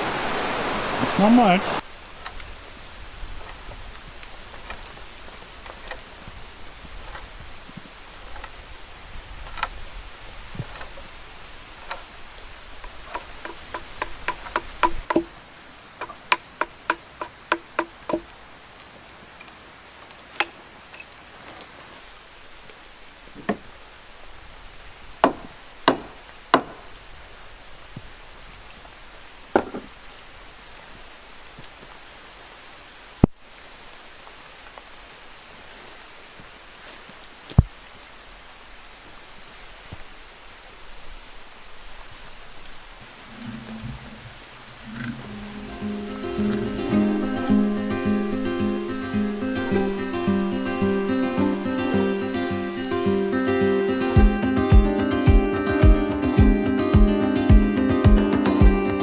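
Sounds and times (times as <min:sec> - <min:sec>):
rain falling: 0:00.0 - 0:59.0
tools knocking on timber: 0:13.1 - 0:15.3, 0:16.0 - 0:18.2, 0:23.4 - 0:23.6, 0:29.6 - 0:29.9.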